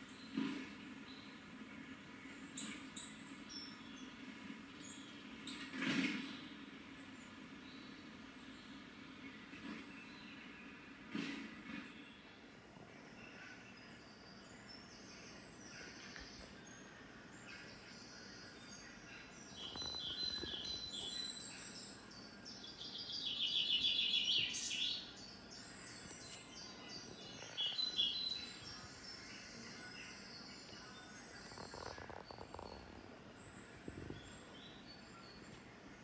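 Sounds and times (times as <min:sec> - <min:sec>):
birds chirping through a speaker: 0:00.0 - 0:36.0.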